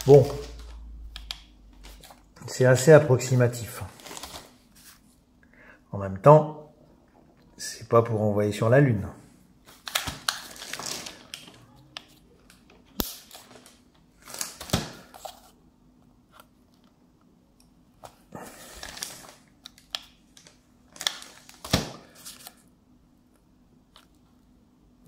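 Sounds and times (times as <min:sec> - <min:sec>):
paper rustling: 0:00.0 - 0:00.8, 0:03.2 - 0:05.2, 0:09.7 - 0:11.6.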